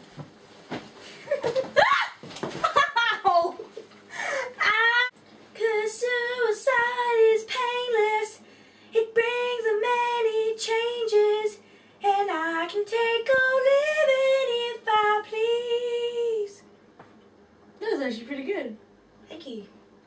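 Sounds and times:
girl singing unaccompanied: 0:04.6 - 0:08.4, 0:09.0 - 0:16.6.

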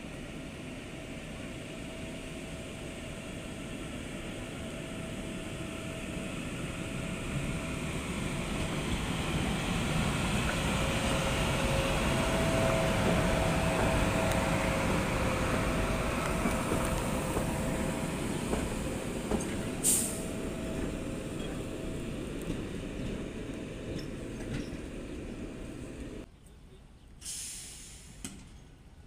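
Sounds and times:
train wheels rumbling on rails: 0:00.0 - 0:26.3
sharp hiss: 0:16.4 - 0:20.5, 0:27.2 - 0:28.4.

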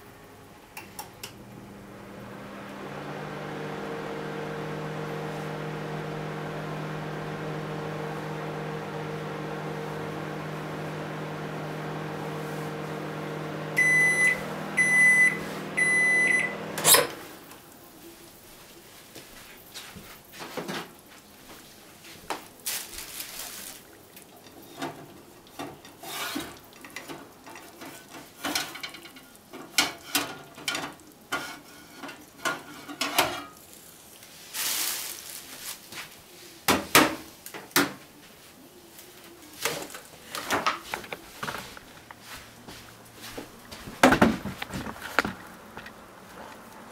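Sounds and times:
microwave oven humming: 0:00.0 - 0:17.6
short high beeps: 0:13.8 - 0:16.5.

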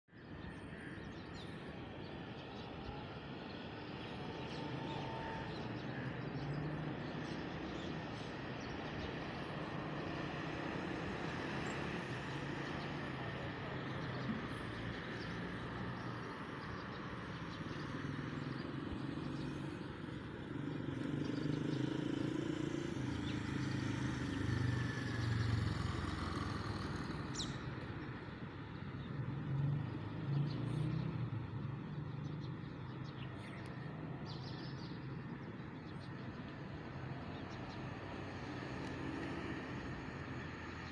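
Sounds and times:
road traffic rumble: 0:00.2 - 0:40.9.

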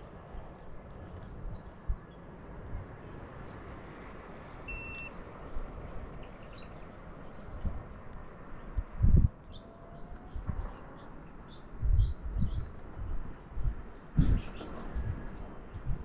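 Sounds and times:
wind and road noise: 0:00.0 - 0:16.0
short high beep: 0:04.7 - 0:05.1
faint bird chirps: 0:04.7 - 0:05.2.

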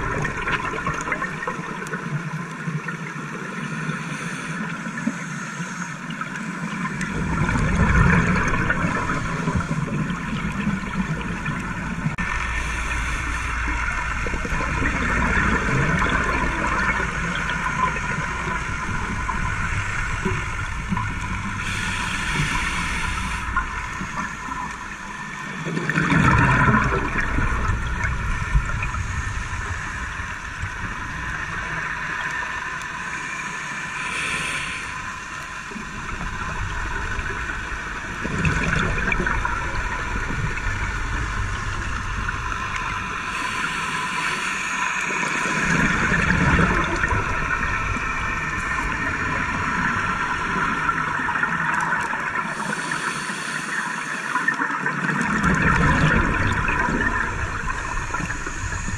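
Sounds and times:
gurgle of exhaled bubbles: 0:00.0 - 0:03.9, 0:06.2 - 0:33.2, 0:34.1 - 0:58.9
steady underwater noise: 0:00.0 - 0:58.9
regulator inhale hiss: 0:03.8 - 0:06.2, 0:12.3 - 0:14.3, 0:18.7 - 0:25.5, 0:32.4 - 0:35.9, 0:42.7 - 0:46.4, 0:52.4 - 0:54.5, 0:57.6 - 0:58.9.

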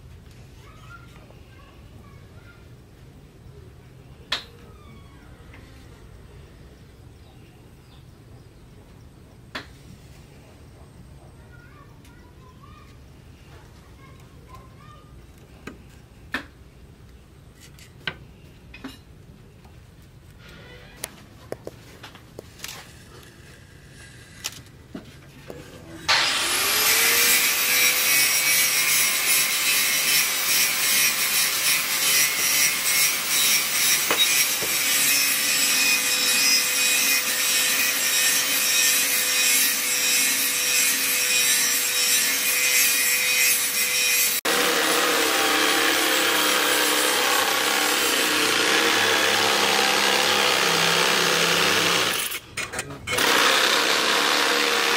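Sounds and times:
jigsaw sawing wood: 0:26.1 - 0:52.4, 0:53.1 - 0:54.9.

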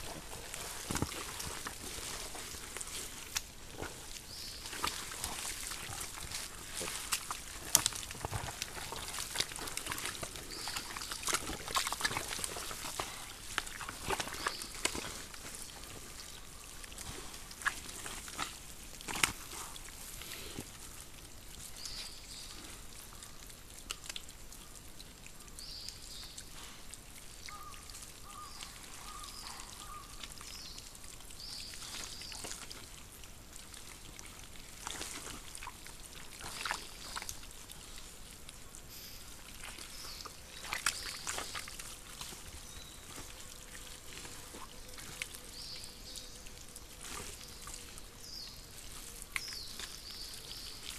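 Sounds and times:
boars squelching in wet mud: 0:00.0 - 0:50.9
sloppy mud slaps: 0:04.6 - 0:15.5, 0:17.0 - 0:19.6.

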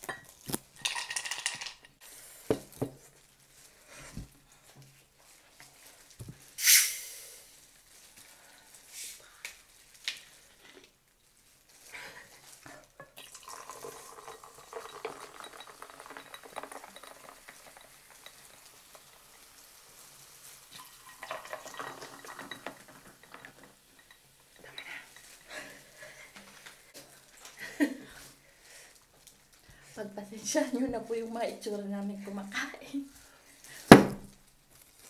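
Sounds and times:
foam hissing: 0:06.6 - 0:07.5
cola pouring and fizzing: 0:13.0 - 0:26.0.

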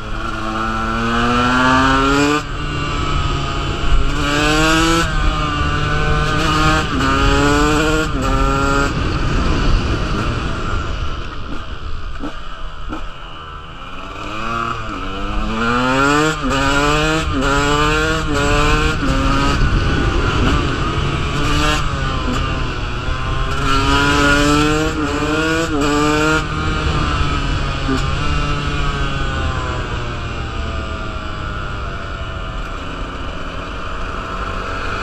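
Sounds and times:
dirt bike engine accelerating: 0:00.0 - 0:35.0
wind buffeting microphone: 0:02.5 - 0:11.8, 0:16.9 - 0:25.6.

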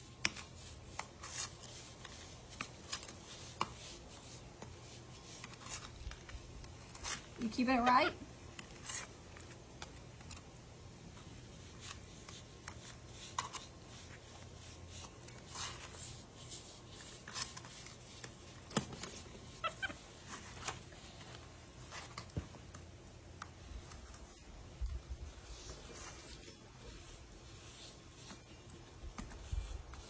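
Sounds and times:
gloved hands smoothing compound: 0:08.4 - 0:30.0.

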